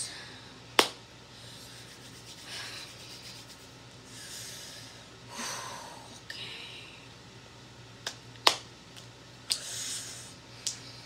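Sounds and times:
sharp hand clap: 0.8s - 1.0s, 8.0s - 9.6s
palms rubbing together: 1.6s - 3.8s.

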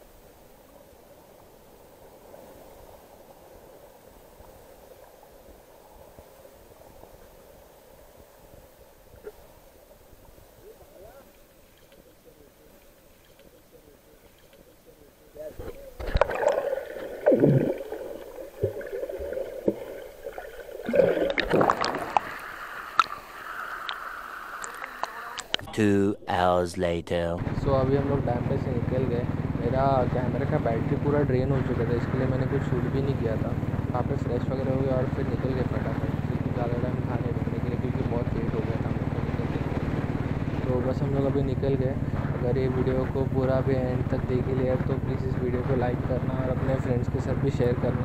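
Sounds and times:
muffled underwater noise: 9.1s - 48.0s
water splashing and gurgling: 15.5s - 25.6s
tiny bubbles crackling: 15.8s - 25.6s.

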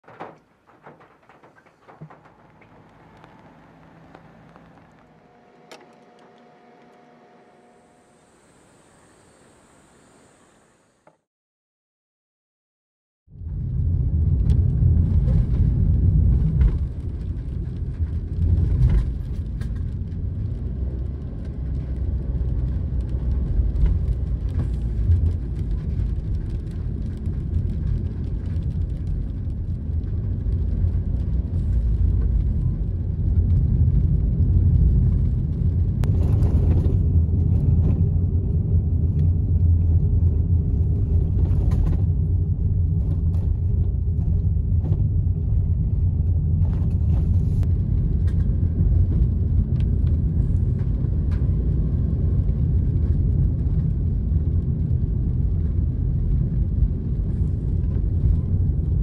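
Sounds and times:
van engine rumble: 0.0s - 11.0s, 13.3s - 59.0s
tyre hiss on wet road: 7.7s - 11.0s.

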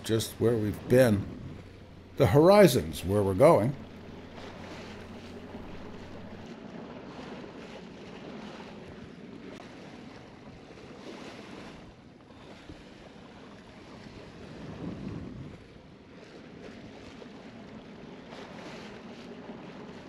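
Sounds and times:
wind buffeting microphone: 0.0s - 6.5s, 14.0s - 15.8s
water rushing along boat hull: 0.0s - 20.0s.

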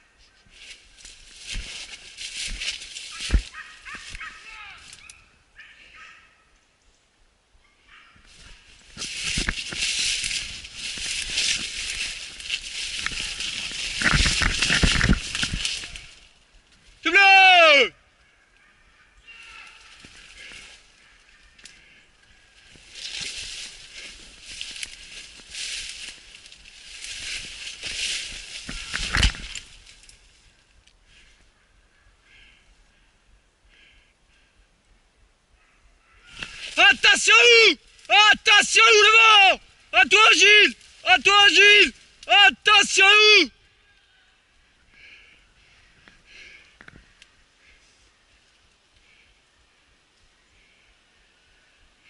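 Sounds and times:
dry brush rustling and crackling: 0.0s - 6.1s, 7.9s - 17.1s, 18.2s - 32.1s, 36.1s - 43.0s, 43.8s - 50.5s
twig clicks: 0.6s - 5.2s, 8.8s - 16.9s, 19.7s - 21.9s, 22.6s - 31.0s, 46.0s - 47.4s.

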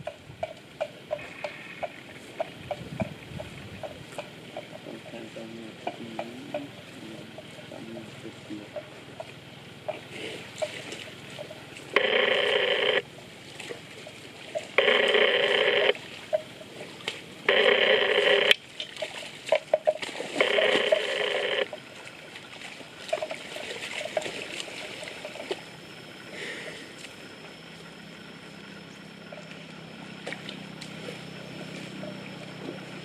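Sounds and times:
water buffalo splashing in mud: 9.0s - 11.9s, 13.2s - 17.4s, 18.2s - 25.8s, 29.4s - 33.0s
phone ringing: 11.9s - 13.0s, 14.8s - 16.0s, 17.4s - 18.6s, 20.4s - 21.8s.

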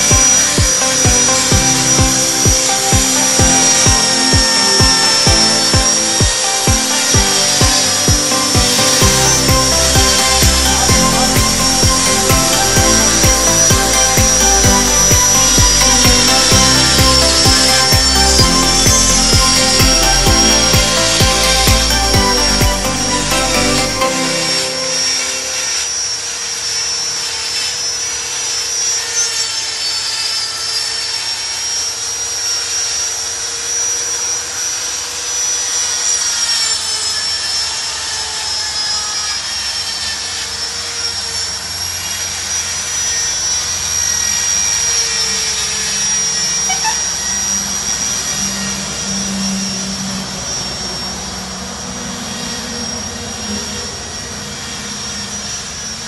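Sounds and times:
power tool whining: 0.0s - 56.0s.

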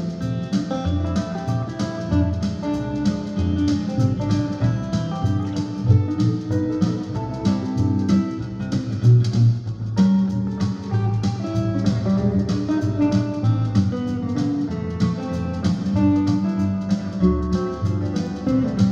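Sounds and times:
fingerstyle electric guitar: 0.0s - 18.9s.

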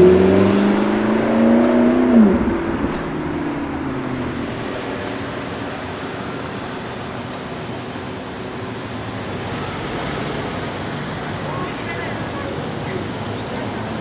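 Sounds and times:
low hum: 0.0s - 5.6s
car engine: 0.0s - 14.0s
street traffic noise: 0.0s - 14.0s.

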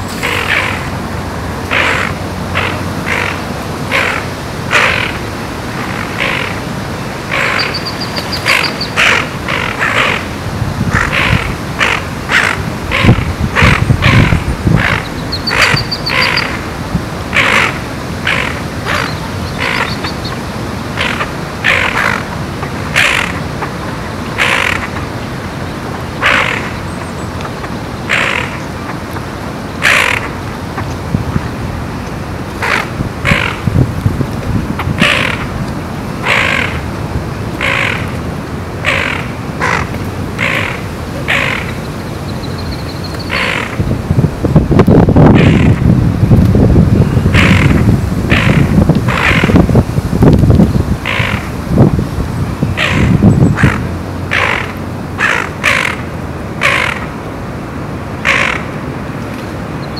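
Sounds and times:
harsh bird calls: 0.0s - 1.0s, 1.7s - 16.6s, 17.3s - 29.1s, 29.8s - 30.4s, 32.6s - 33.8s, 37.6s - 38.2s, 38.8s - 43.9s, 47.0s - 49.6s, 50.5s - 51.6s, 52.6s - 57.1s
high bird trills: 7.3s - 10.2s, 11.0s - 16.6s, 17.4s - 20.4s, 38.8s - 43.8s.

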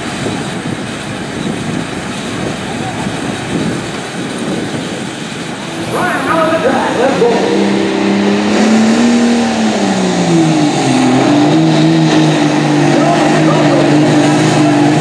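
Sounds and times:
diesel engine labouring: 0.0s - 15.0s.

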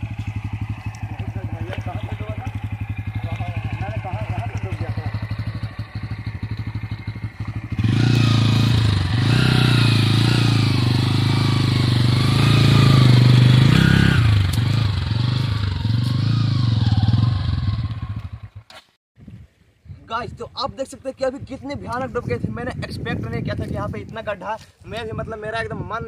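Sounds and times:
motorcycle engine revving: 0.0s - 18.7s.

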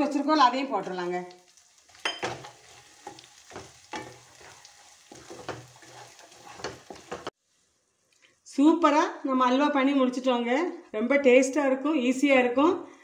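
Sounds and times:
light sizzle: 0.0s - 8.9s
wooden spatula stirring and scraping: 1.8s - 7.6s.

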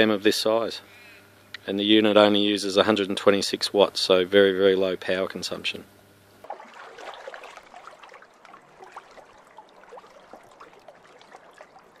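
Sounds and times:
air bubbles bubbling in water: 6.4s - 12.0s.

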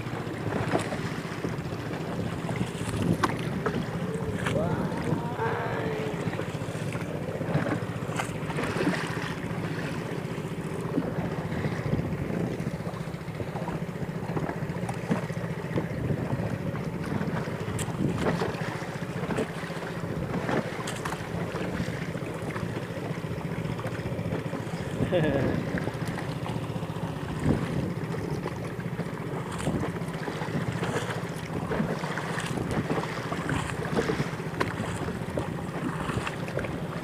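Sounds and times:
paddle dipping and splashing: 0.0s - 37.0s
water slapping boat hull: 0.0s - 37.0s
wind buffeting microphone: 1.4s - 8.0s, 10.9s - 13.6s, 27.2s - 28.1s.

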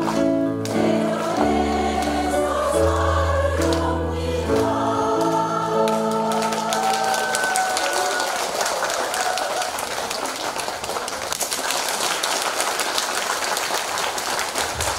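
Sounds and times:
choir holding a chord: 0.6s - 7.4s
audience applauding: 4.6s - 14.9s.

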